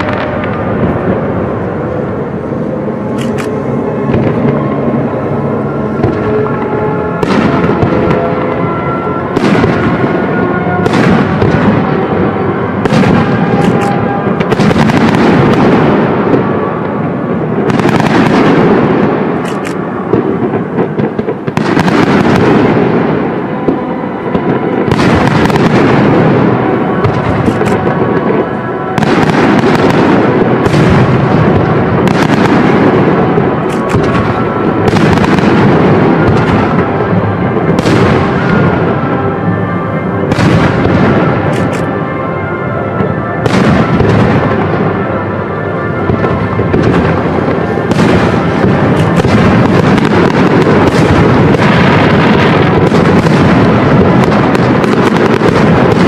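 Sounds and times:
fireworks crackling: 0.0s - 42.2s, 42.9s - 56.0s
music: 0.0s - 56.0s.

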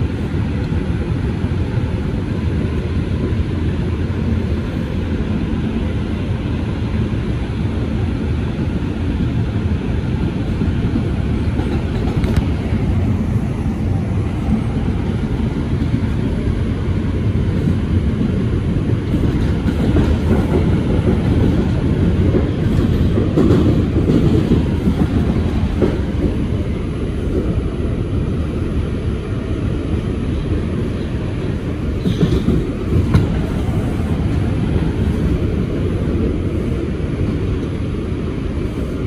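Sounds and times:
wheels rumbling on rail: 0.0s - 39.0s
clickety-clack of wheels: 11.0s - 12.8s, 17.5s - 26.6s, 32.0s - 36.3s.

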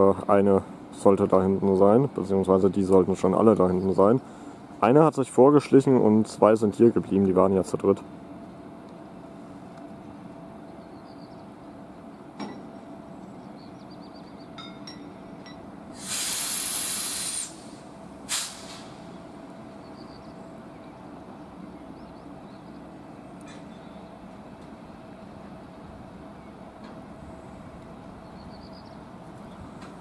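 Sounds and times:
air brakes hissing: 15.9s - 19.2s.

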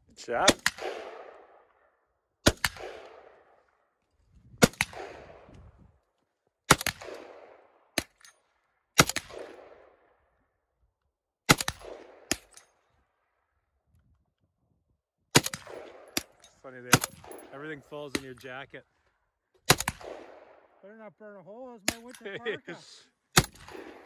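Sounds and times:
rifle shots with rolling echo: 0.3s - 4.0s, 4.6s - 5.9s, 6.7s - 10.6s, 11.5s - 13.5s, 15.3s - 18.7s, 19.6s - 20.9s, 23.3s - 24.0s.

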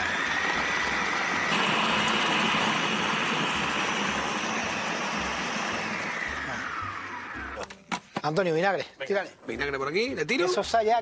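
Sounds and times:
food processor motor whine: 0.0s - 7.7s.

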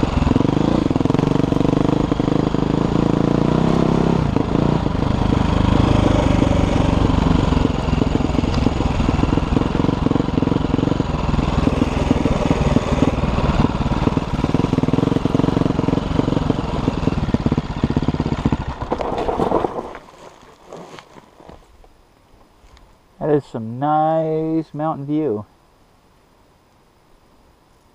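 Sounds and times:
dirt bike engine running: 0.0s - 21.6s.

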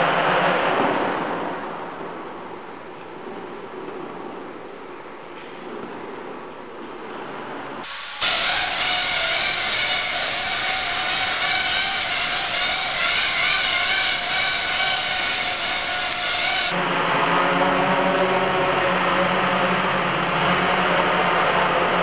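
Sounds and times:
hiss: 7.8s - 16.8s
drone propellers whining: 7.8s - 22.0s
low steady motor hum: 7.9s - 22.0s.

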